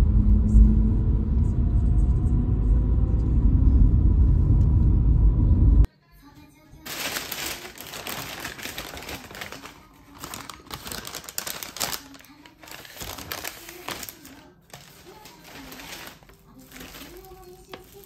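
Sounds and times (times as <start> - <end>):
paper bags rustling: 6.9 - 18.0.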